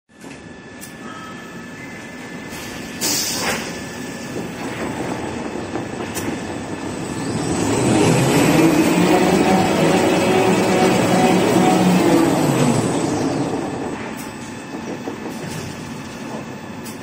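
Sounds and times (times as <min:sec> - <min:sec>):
rewinding machine rattle and rumble: 0:04.4 - 0:16.4.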